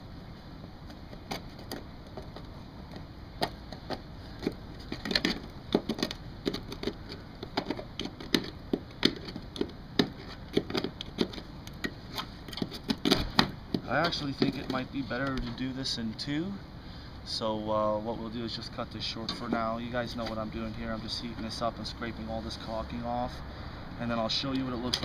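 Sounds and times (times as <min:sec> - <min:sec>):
tool scraping caulking off metal: 0:03.4 - 0:14.9.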